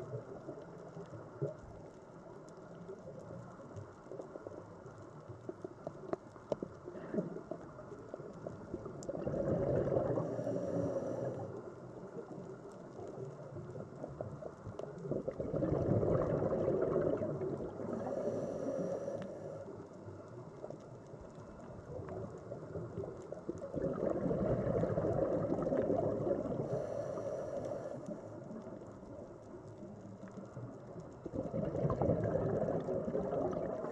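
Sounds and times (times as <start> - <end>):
underwater bubbles gurgling: 0.0 - 33.9.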